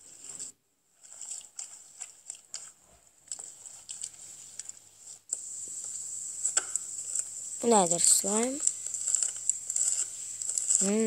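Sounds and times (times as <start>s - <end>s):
hands squishing slime: 1.0s - 4.8s, 7.1s - 11.0s.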